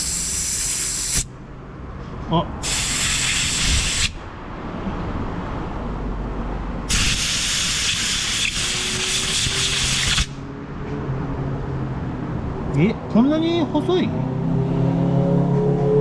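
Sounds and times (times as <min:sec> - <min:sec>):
air blow gun hissing: 0:00.0 - 0:01.3, 0:02.6 - 0:04.2, 0:06.9 - 0:10.4.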